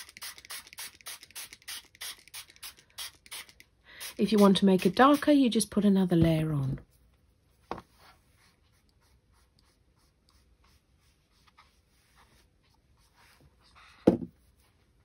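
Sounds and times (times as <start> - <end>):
paintbrush strokes on card: 7.8 - 15.0.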